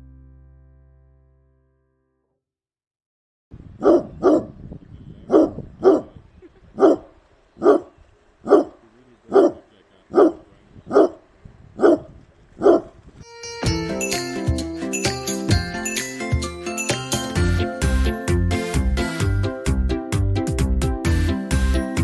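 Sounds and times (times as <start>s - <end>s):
dog barking: 3.8s - 4.6s, 5.3s - 6.1s, 6.8s - 11.2s, 11.8s - 13.0s.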